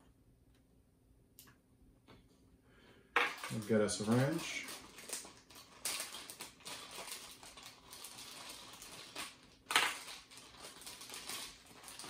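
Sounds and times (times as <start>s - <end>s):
plastic packaging crinkling: 3.2s - 12.0s.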